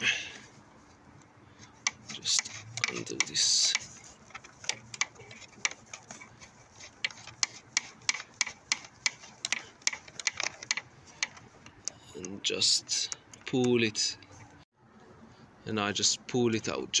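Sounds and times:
cable rubbing against wiring: 1.6s - 12.4s
cable nut clicking and rattling: 1.7s - 13.8s.

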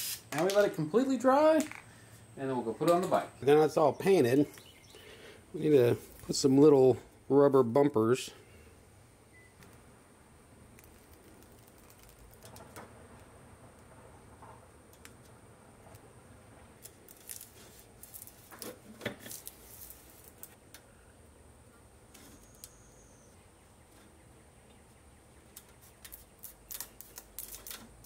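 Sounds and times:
rubber strip peeling: 10.8s - 12.8s, 16.8s - 20.6s, 25.8s - 28.0s.

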